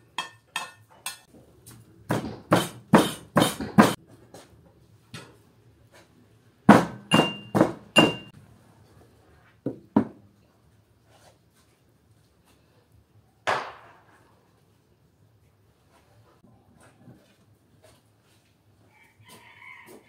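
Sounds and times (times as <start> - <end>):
pestle knocking in a mortar: 2.1 - 4.0, 6.7 - 8.3.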